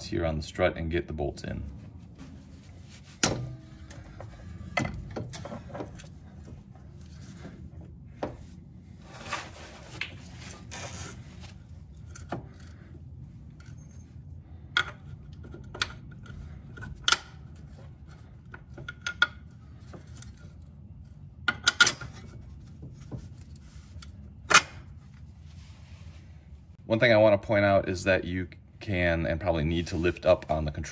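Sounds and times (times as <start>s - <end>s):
metal scraping rub: 2.0s - 7.7s
metal clanks and taps: 14.7s - 17.4s, 18.5s - 20.3s.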